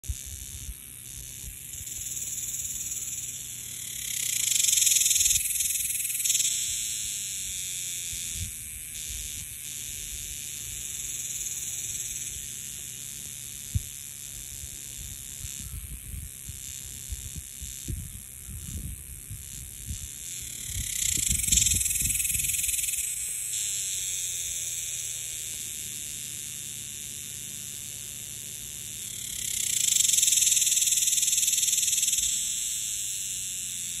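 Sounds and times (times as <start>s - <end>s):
cicada buzzing: 0.0s - 34.0s
low rumbling on microphone: 14.9s - 22.4s.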